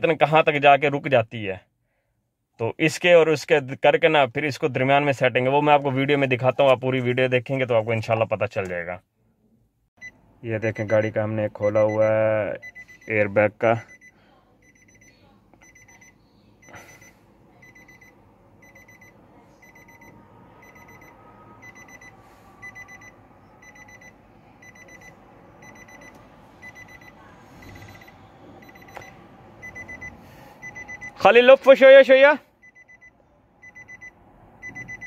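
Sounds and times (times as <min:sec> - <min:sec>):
car warning chime beeping: 0:10.0 - 0:35.0.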